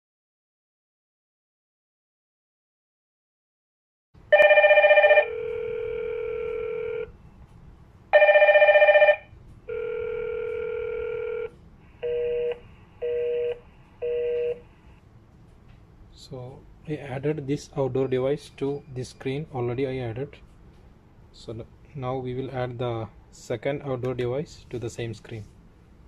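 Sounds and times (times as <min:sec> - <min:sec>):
warbling intercom ring tone: 0:04.3 - 0:07.1, 0:08.2 - 0:14.6.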